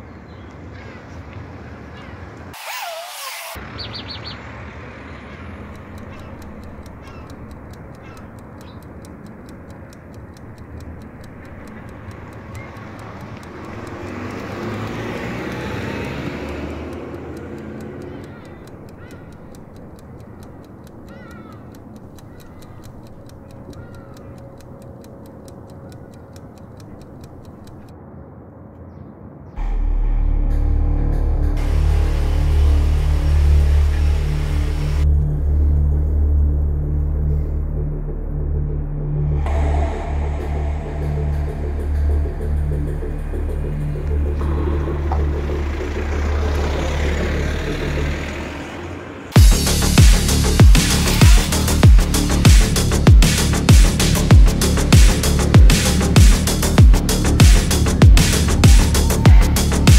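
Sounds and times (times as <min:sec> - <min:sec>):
distant road traffic hum: 0:00.0 - 0:59.9
faint bird chirps: 0:03.7 - 0:04.4, 0:05.2 - 0:09.0, 0:12.5 - 0:13.0, 0:20.2 - 0:24.6
loud music with heavy bass: 0:29.6 - 0:35.6, 0:36.5 - 0:48.2, 0:49.4 - 0:59.9.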